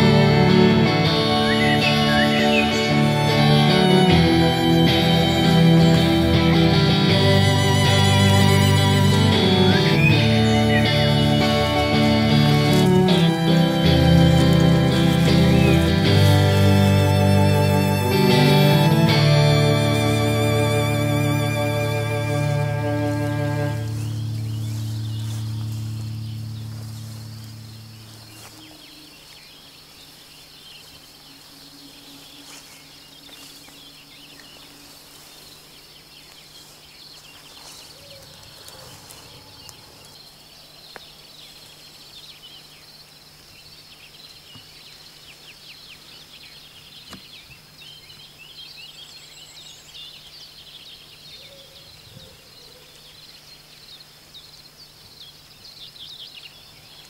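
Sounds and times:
crickets chirring: 0.0s - 57.0s
low steady hum: 2.9s - 41.9s.

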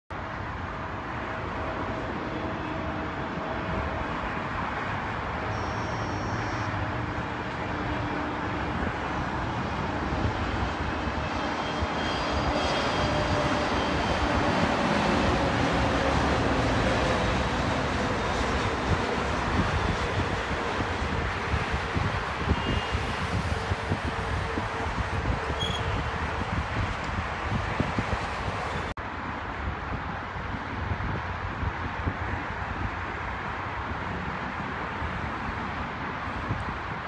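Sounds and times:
jet engines rushing: 0.2s - 29.0s.

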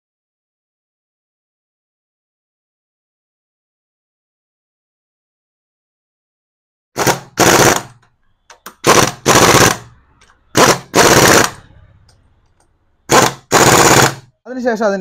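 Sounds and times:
impact wrench rattling: 7.0s - 9.9s, 10.5s - 11.6s, 13.1s - 14.2s.

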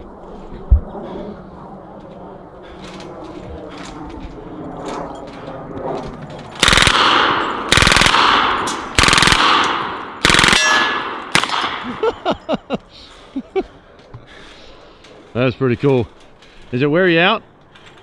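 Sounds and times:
automatic gunfire bursts: 6.6s - 11.8s.

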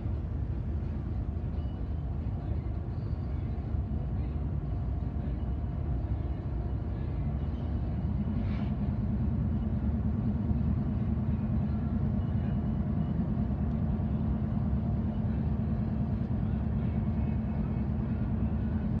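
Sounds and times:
low hum: 0.0s - 19.0s
vehicle engine rumble: 0.0s - 19.0s.

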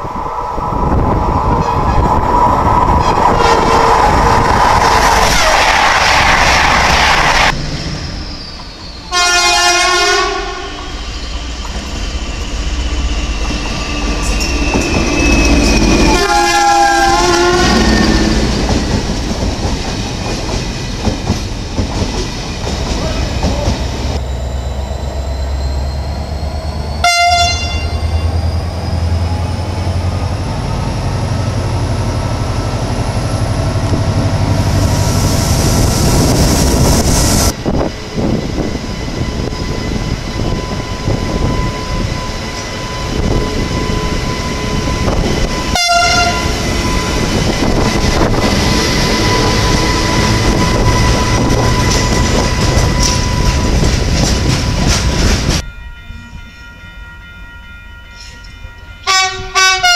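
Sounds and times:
train rushing past: 0.0s - 59.9s
railway cars clattering on track: 1.1s - 57.3s
train horn blasts: 3.0s - 4.0s, 9.1s - 11.0s, 15.8s - 18.5s, 27.0s - 28.3s, 45.7s - 46.7s, 57.8s - 59.9s.

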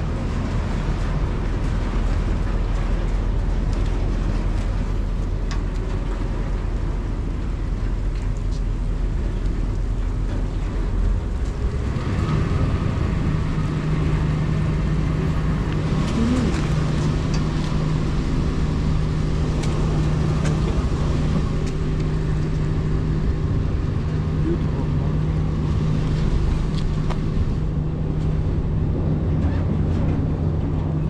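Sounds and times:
engine drone: 0.0s - 31.0s.

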